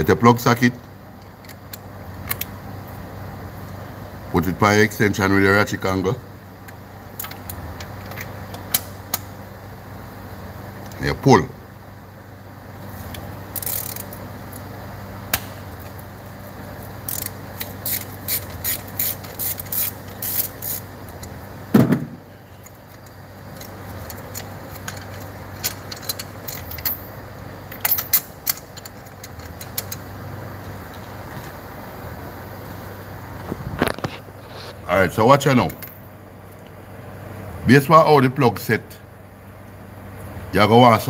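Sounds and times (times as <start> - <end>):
socket ratchet clicking: 13.1 - 14.2, 17.0 - 21.4, 27.7 - 30.0
dull thump: 21.7 - 22.2.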